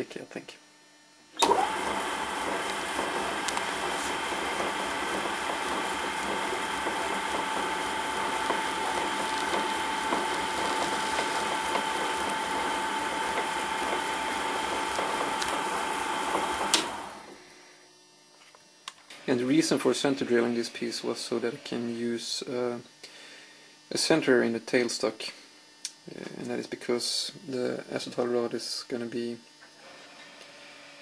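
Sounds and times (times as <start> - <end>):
drill boring into plastic: 1.4 - 17.3
lathe running with high whine: 1.4 - 17.7.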